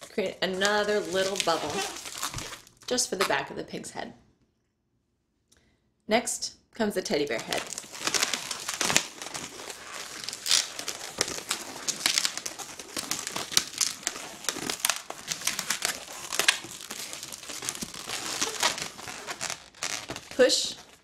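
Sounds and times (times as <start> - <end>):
balloon rubber squeaking: 0.8 - 3.4, 7.5 - 21.0.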